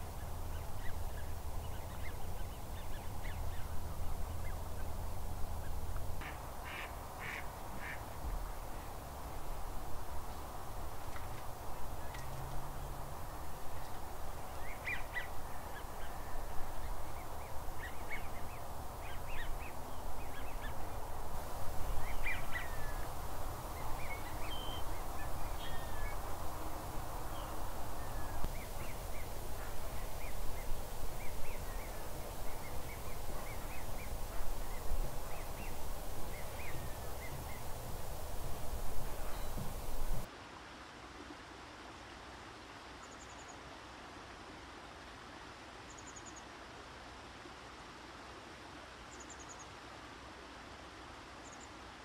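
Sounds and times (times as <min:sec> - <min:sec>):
background noise and low rumble: 0:00.0 - 0:52.0
waterfowl calling: 0:06.2 - 0:08.0.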